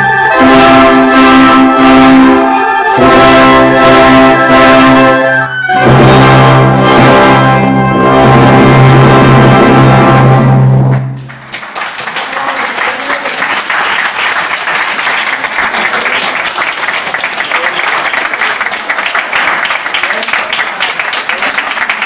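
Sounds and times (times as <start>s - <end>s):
orchestra chord: 0.0s - 11.0s
audience applauding: 10.9s - 22.0s.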